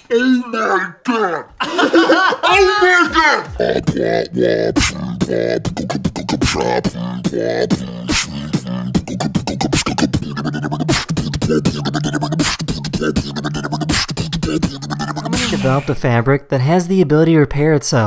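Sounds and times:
person beatboxing with deep voice: 2.6s - 16.0s.

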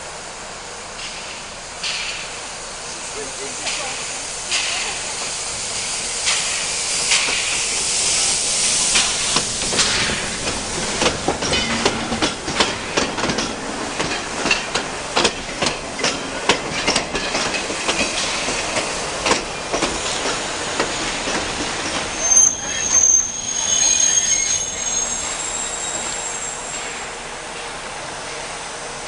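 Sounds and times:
steam hissing from locomotive: 0.0s - 29.0s
train wheels clacking over rail joints: 1.0s - 2.4s, 3.5s - 5.4s, 6.2s - 22.4s.

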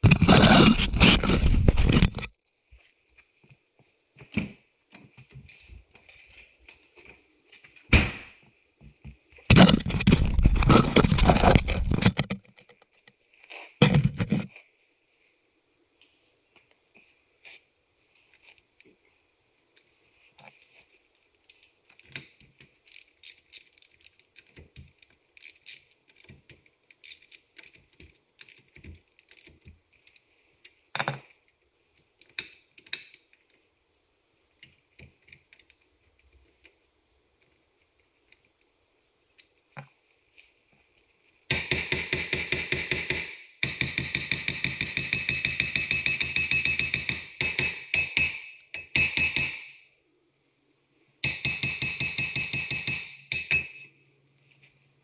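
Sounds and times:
rapid mechanical hammering: 41.5s - 48.4s.

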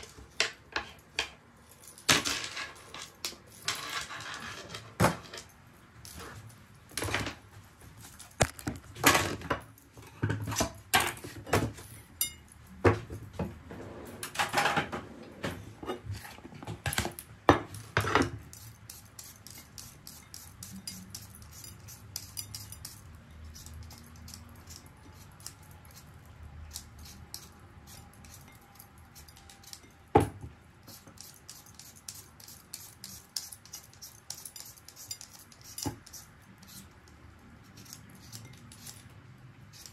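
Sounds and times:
dishes and utensils clattering: 8.4s - 18.5s
vegetable peeler scraping potatoes: 17.7s - 30.0s, 30.8s - 39.9s.

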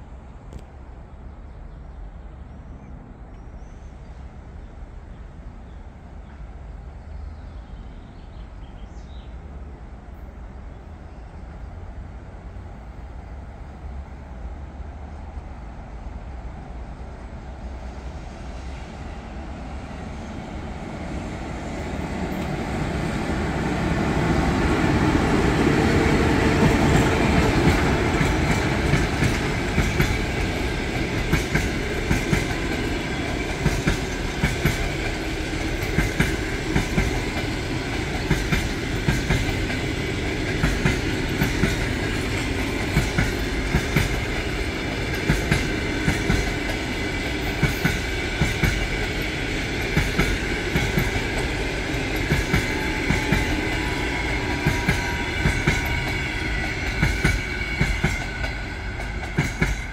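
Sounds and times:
electric locomotive passing: 9.2s - 59.9s
train wheels clickety-clack: 20.8s - 59.9s.

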